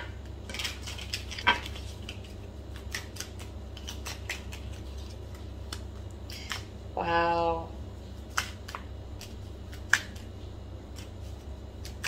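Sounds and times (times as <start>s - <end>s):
cards being shuffled: 0.5s - 6.7s.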